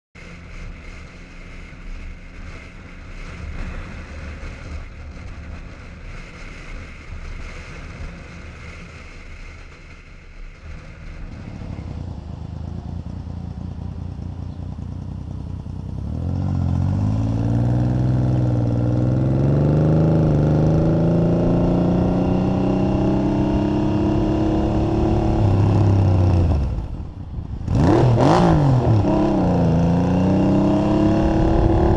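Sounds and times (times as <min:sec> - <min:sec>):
motorcycle accelerating: 0:00.2 - 0:31.9
motorcycle engine idling: 0:11.0 - 0:16.1.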